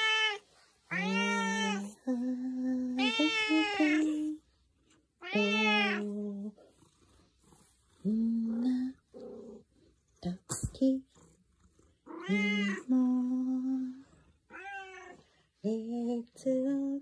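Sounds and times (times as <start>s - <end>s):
cat meowing: 5.2s - 6.0s, 14.5s - 15.2s.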